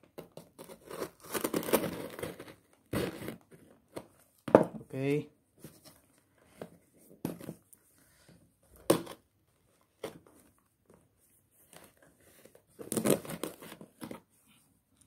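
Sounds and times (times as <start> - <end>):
plastic wrapping crinkling and tearing: 0.6 - 3.1, 12.8 - 13.8.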